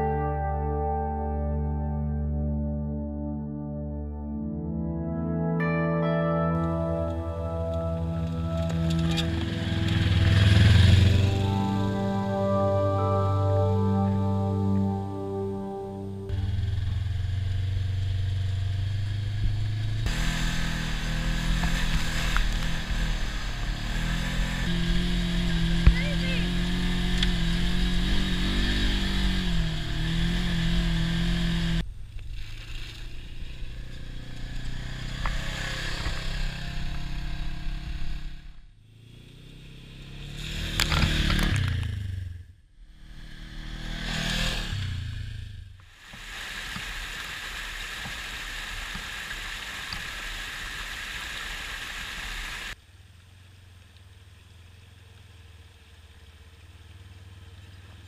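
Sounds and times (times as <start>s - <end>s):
vehicle passing: 6.6s - 45.7s
engine running under throttle: 6.6s - 56.3s
water rushing: 45.9s - 52.8s.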